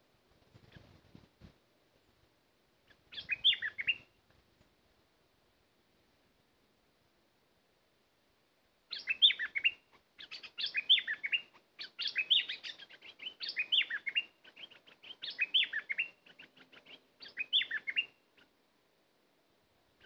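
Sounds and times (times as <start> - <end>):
bulbul singing whistled notes: 3.1 - 4.1, 8.9 - 18.2.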